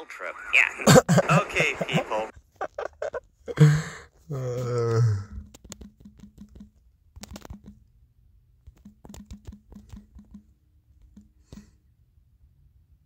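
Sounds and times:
fingertips tapping touchscreen: 5.4s - 7.9s, 8.6s - 11.8s.

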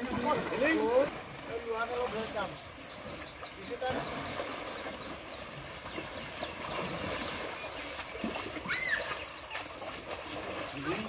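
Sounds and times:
water sloshing: 0.0s - 11.0s
rising and falling animal call: 8.6s - 9.2s.

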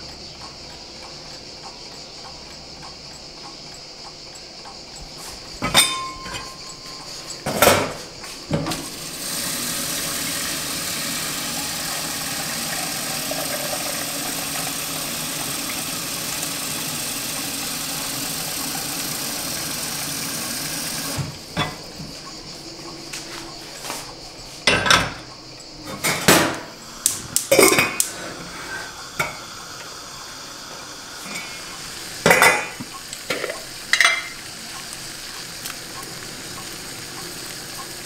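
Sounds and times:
steel pot and lid clanking: 5.6s - 6.6s, 32.2s - 34.4s
tap water running into pot: 8.5s - 22.0s, 28.9s - 38.0s.

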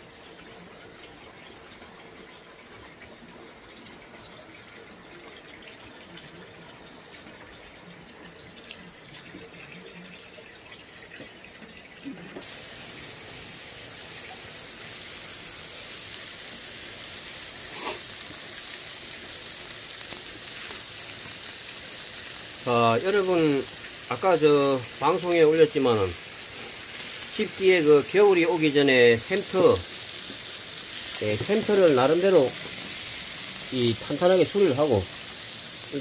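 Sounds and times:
faint steady hiss: 12.0s - 36.0s
meat sizzling on griddle: 12.4s - 36.0s.

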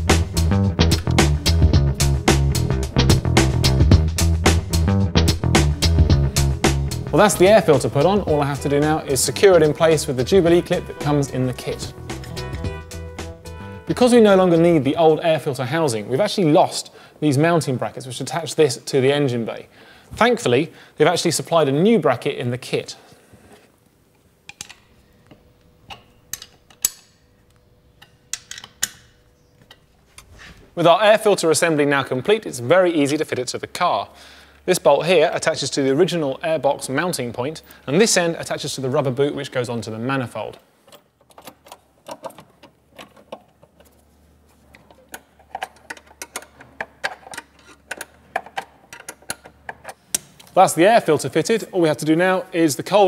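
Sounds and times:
spanner and bolts clinking: 24.5s - 27.3s, 44.7s - 50.5s
hand tools clicking and tapping: 24.5s - 29.9s, 40.8s - 44.0s, 44.7s - 50.6s.

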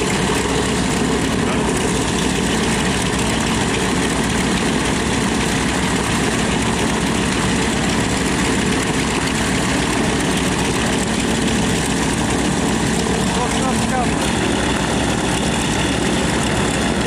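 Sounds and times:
radial aircraft engines idling: 0.0s - 17.0s.

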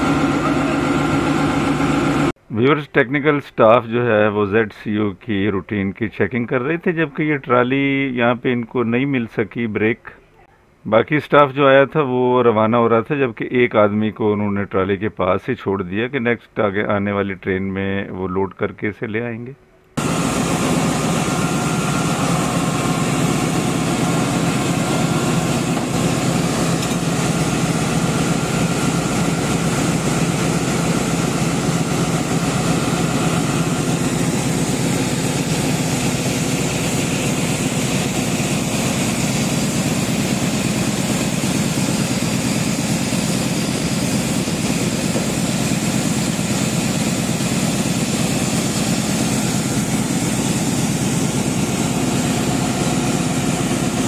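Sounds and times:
diesel locomotive idling: 0.0s - 2.4s, 20.0s - 54.0s.

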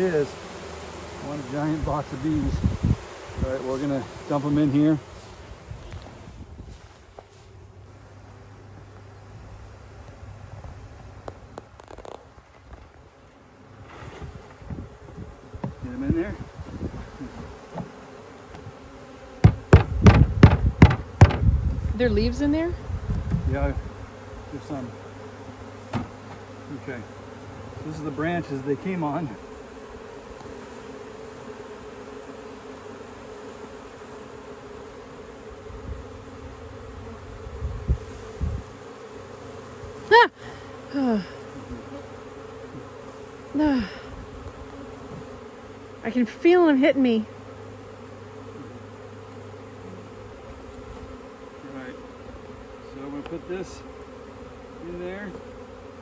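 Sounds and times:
bee buzzing past: 0.0s - 56.0s
bee swarm buzzing: 0.0s - 56.0s
container knocking on hive box: 14.1s - 15.8s, 17.3s - 18.6s, 19.4s - 21.8s, 25.9s - 26.5s
low thumps: 19.4s - 22.4s.

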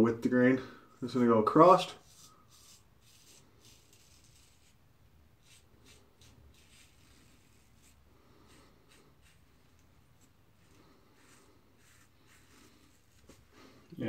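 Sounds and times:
razor scraping stubble: 1.9s - 4.8s, 5.4s - 13.6s.

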